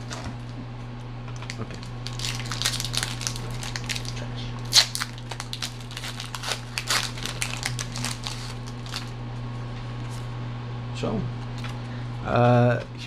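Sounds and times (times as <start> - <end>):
steady low hum: 0.0 - 13.0
foil wrapper crinkling and tearing: 1.4 - 9.1.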